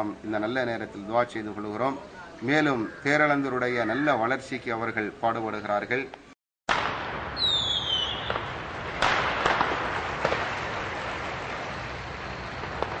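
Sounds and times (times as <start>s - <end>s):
firework pops: 6.7s - 11.8s, 12.4s - 13.0s
firework crackling hiss: 6.7s - 13.0s
firework whistle falling: 7.4s - 10.4s.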